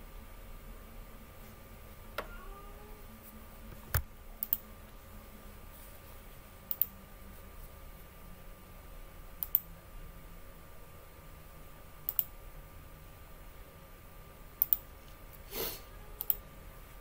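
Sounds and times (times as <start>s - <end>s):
computer mouse clicks: 3.9s - 4.6s, 6.7s - 6.9s, 9.4s - 9.7s, 12.1s - 12.3s, 14.6s - 14.9s, 16.2s - 16.4s.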